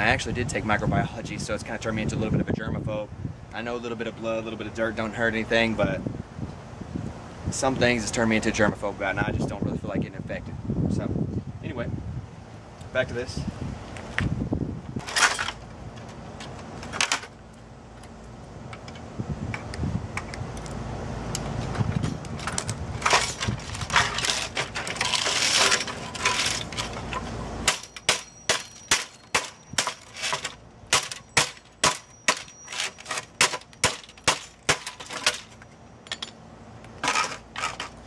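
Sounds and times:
plastic parts snapping and rattling: 0:22.1 - 0:36.3, 0:36.9 - 0:38.0.

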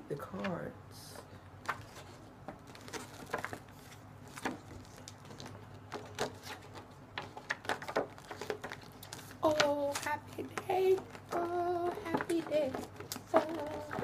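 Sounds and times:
paper cards rustling and clicking: 0:00.3 - 0:14.0.

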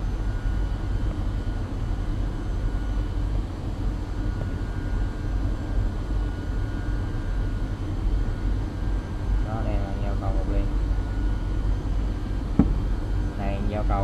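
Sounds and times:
faint machine whines: 0:00.0 - 0:14.0
low rumble of machinery: 0:00.0 - 0:14.0.

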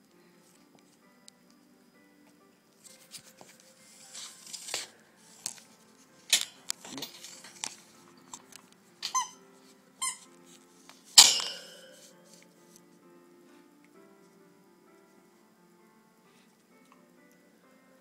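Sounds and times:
squeaky ball squeaks: 0:09.1 - 0:09.4, 0:10.0 - 0:10.3.

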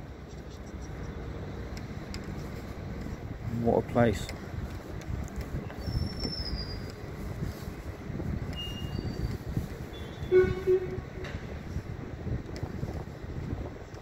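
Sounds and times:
wind rumbling on microphone: 0:00.0 - 0:14.0
short horn toot: 0:09.9 - 0:11.5.

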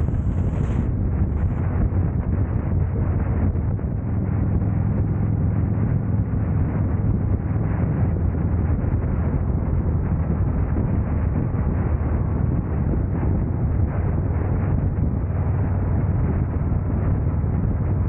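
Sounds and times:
motorcycle engine cruising: 0:00.0 - 0:02.5
wind on microphone: 0:00.0 - 0:18.0.

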